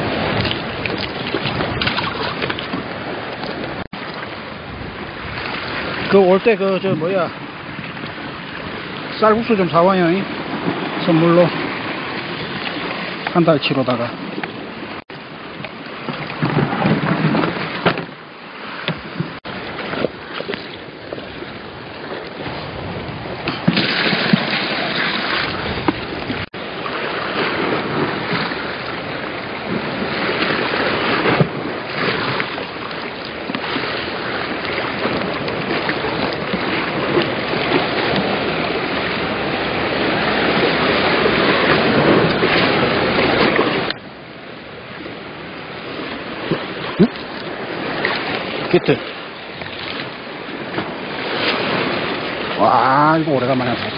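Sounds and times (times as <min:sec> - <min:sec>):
sea surf washing against rocks: 0:00.0 - 0:53.9
wind buffeting microphone: 0:00.0 - 0:53.9.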